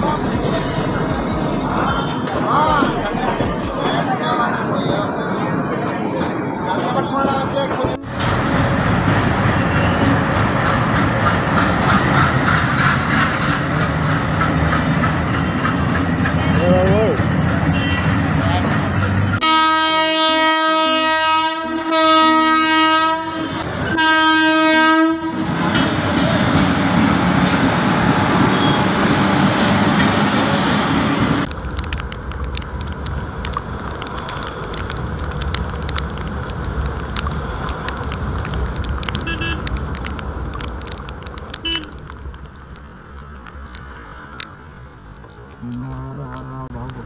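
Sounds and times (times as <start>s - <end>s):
steady rushing noise: 0.0s - 19.4s
horn blasts: 17.7s - 18.2s, 19.4s - 25.5s, 39.2s - 39.7s.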